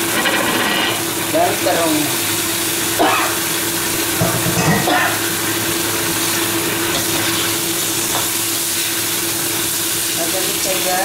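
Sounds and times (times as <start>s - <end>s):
steady hum: 0.0s - 7.0s
eggplant sizzling in oil: 0.0s - 11.0s.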